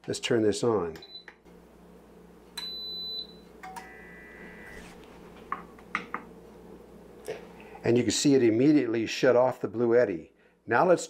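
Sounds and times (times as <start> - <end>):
steady electronic whine: 3.8 - 5.0.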